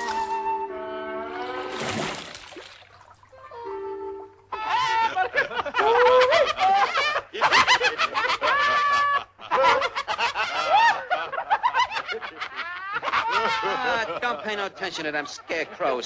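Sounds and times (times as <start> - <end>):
cartoon voices laughing: 4.6 - 14.3.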